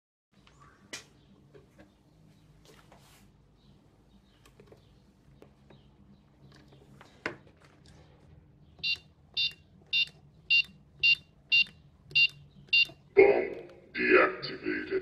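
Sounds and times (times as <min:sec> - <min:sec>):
high electronic keypad beeps: 0:08.8 - 0:13.0.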